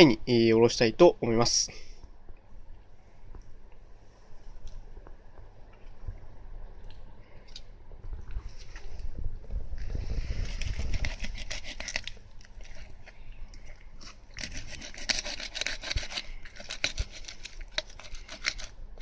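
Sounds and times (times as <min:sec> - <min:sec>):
low rumble: 0:02.2 - 0:11.4
knife scraping through fish bone: 0:10.5 - 0:13.0, 0:14.1 - 0:18.8.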